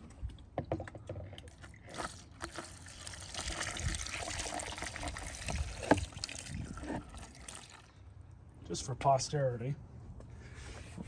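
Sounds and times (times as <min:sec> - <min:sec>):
motor oil pouring into a funnel: 0:00.0 - 0:08.3.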